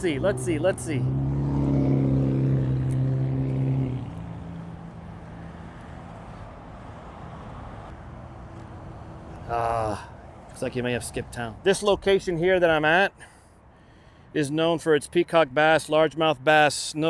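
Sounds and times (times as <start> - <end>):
vehicle engine humming: 0.0 - 12.7
faint traffic: 0.0 - 17.0.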